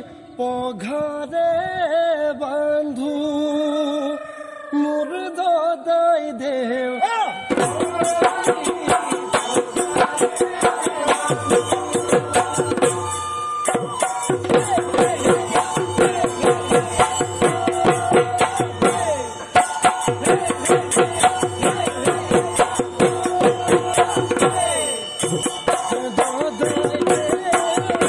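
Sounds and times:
dhol drum beating: 0:07.3 - 0:28.0
hand cymbals clashing: 0:07.5 - 0:28.0.

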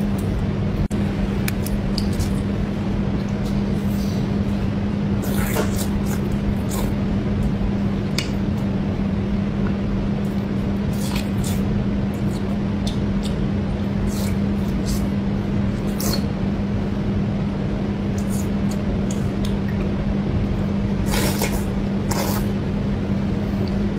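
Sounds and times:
steady low hum: 0:00.0 - 0:23.9
person chewing: 0:05.2 - 0:07.0, 0:10.2 - 0:16.3, 0:21.0 - 0:22.6
slurp of noodles: 0:21.0 - 0:22.5.

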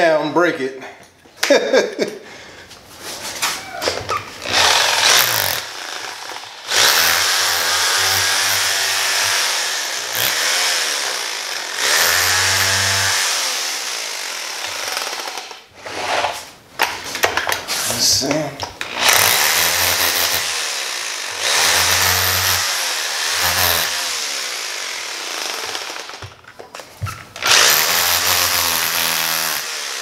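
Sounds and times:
electric drill boring: 0:04.4 - 0:16.1, 0:18.8 - 0:26.4, 0:27.4 - 0:30.0.

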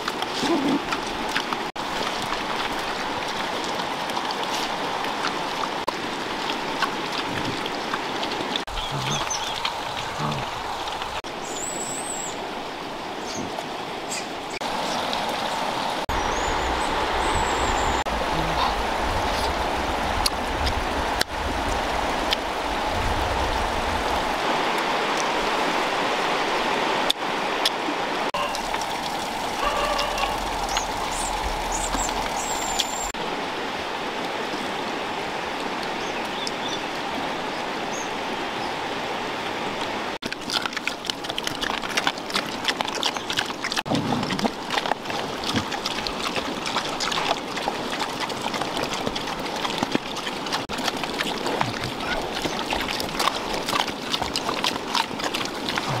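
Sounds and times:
animals eating with clicks and smacks: 0:00.0 - 0:12.2, 0:28.4 - 0:33.2, 0:39.8 - 0:56.0
river flowing: 0:00.0 - 0:56.0.

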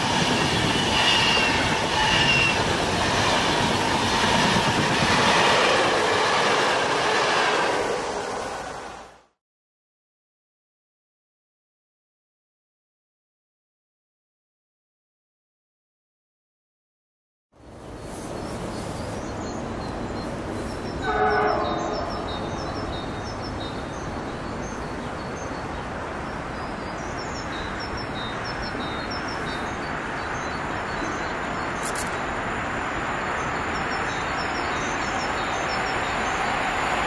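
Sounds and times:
train horn blast: 0:00.0 - 0:02.8, 0:05.7 - 0:09.0, 0:21.0 - 0:22.3
train rumbling on rails: 0:00.0 - 0:09.4, 0:17.6 - 0:37.0.

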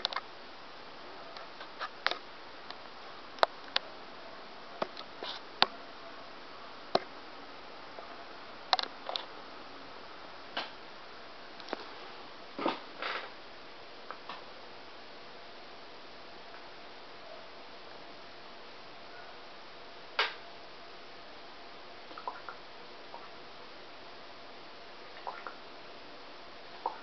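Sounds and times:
faint steady hiss: 0:00.0 - 0:27.0
soft rustling bursts: 0:05.0 - 0:05.6.

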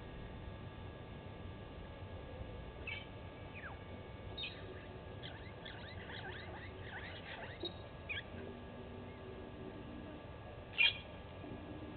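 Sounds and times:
small birds chirping: 0:02.8 - 0:08.4, 0:10.7 - 0:11.2.

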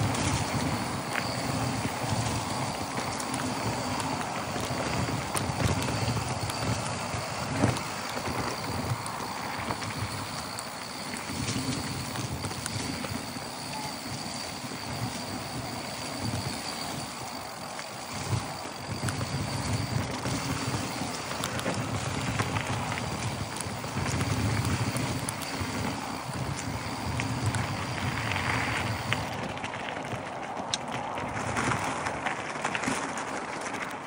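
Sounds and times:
bike rattling over bumps: 0:00.0 - 0:34.0
bike tyres crunching on dirt: 0:00.0 - 0:34.0
wind rumbling on microphone: 0:00.0 - 0:34.0.

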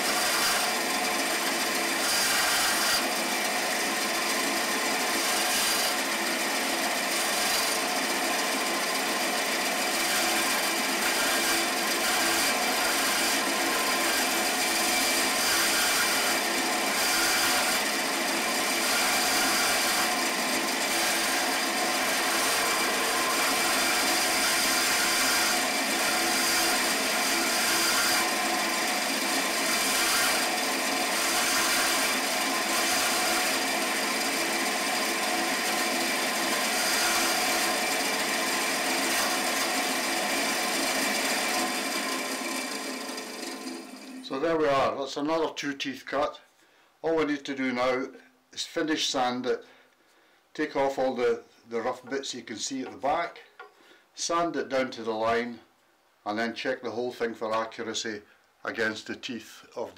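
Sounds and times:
bandsaw cutting wood: 0:00.0 - 0:44.6.

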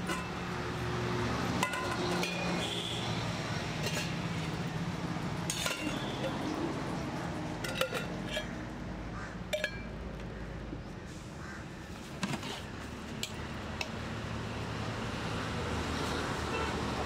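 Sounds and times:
steel lids clinking on containers: 0:00.0 - 0:00.6, 0:01.5 - 0:03.1, 0:03.8 - 0:04.7, 0:05.4 - 0:06.7, 0:07.5 - 0:08.7, 0:09.5 - 0:10.0
street background hum: 0:00.0 - 0:17.0.

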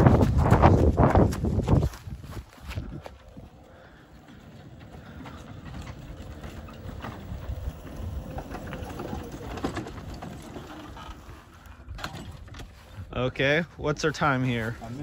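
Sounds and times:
golf cart rumbling: 0:02.8 - 0:13.3
cart knocking and rattling: 0:04.3 - 0:12.9.

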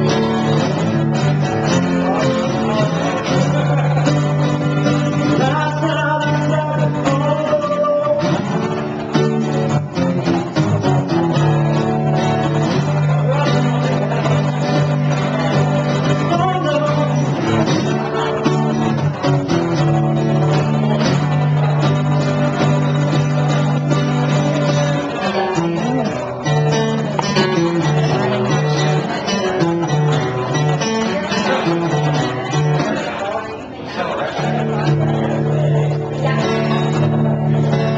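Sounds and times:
acoustic guitar strumming: 0:00.0 - 0:37.9
man singing: 0:01.8 - 0:09.3, 0:12.8 - 0:19.0.

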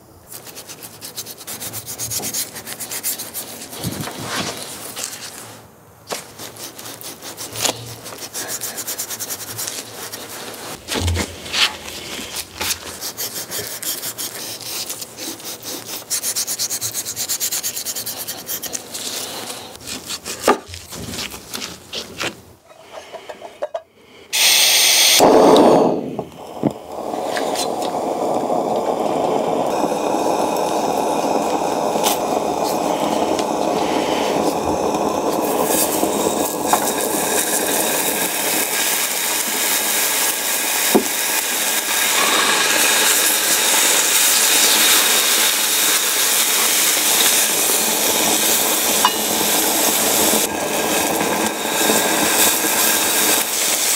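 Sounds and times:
knife slicing on wooden board: 0:10.7 - 0:13.3
loud noisy burst: 0:10.8 - 0:12.9, 0:24.4 - 0:53.9
meat sizzling on grill pan: 0:24.4 - 0:53.9.

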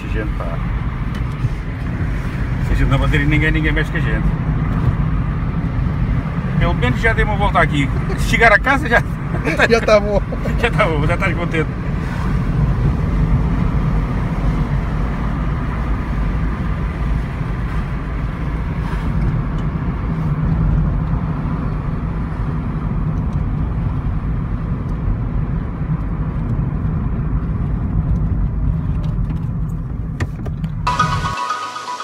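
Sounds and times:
car engine running: 0:00.0 - 0:32.0
tyre and road noise: 0:00.0 - 0:32.0.

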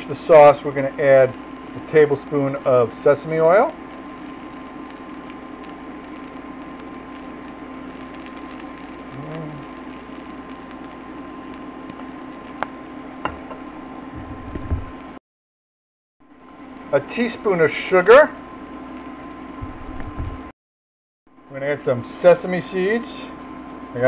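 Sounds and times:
steady mechanical hum: 0:00.0 - 0:15.2, 0:16.3 - 0:20.5, 0:21.3 - 0:24.0.

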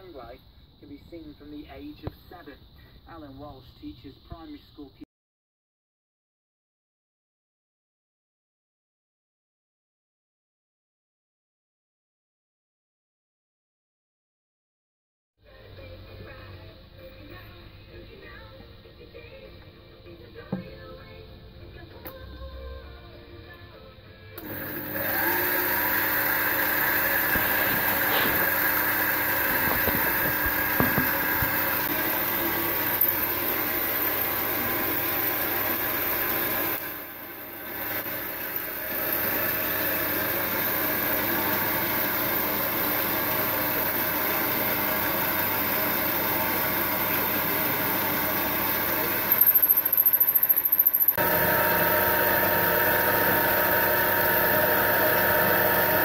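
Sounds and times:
cutting tool turning metal bar: 0:24.4 - 0:56.0
drill drilling into metal: 0:24.4 - 0:56.0
metal lathe motor hum and whine: 0:24.4 - 0:56.0.

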